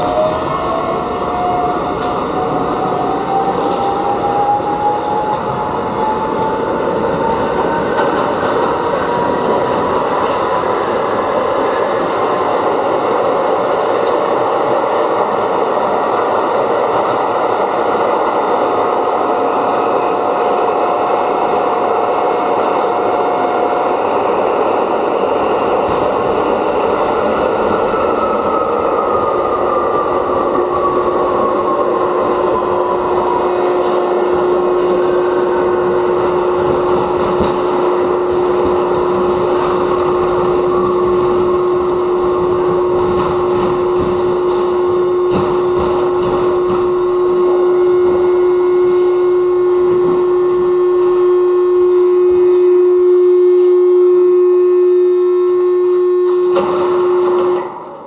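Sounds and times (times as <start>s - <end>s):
subway car rumble: 0.0s - 58.0s
train motor whine: 30.2s - 58.0s.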